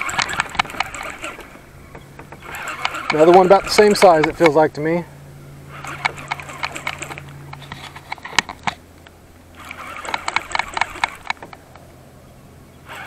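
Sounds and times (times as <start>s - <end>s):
fishing reel clicking: 0.0s - 1.5s, 2.4s - 4.6s, 5.7s - 8.8s, 9.5s - 11.6s.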